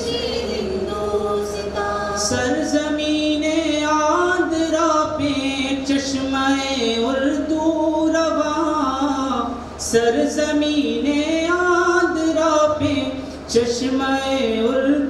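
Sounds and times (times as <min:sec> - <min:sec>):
group singing an anthem: 0:00.0 - 0:04.6.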